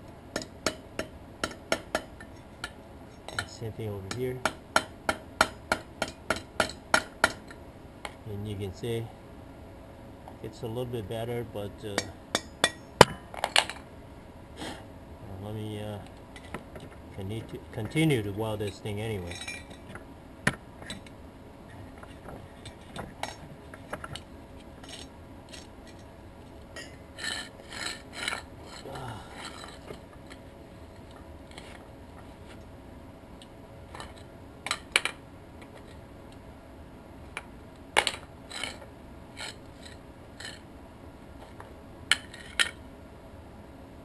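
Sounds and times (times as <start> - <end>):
steel tubing clinks and scrapes: 18.6 - 19.9, 24.2 - 26.1, 26.8 - 31.7, 38.5 - 40.6.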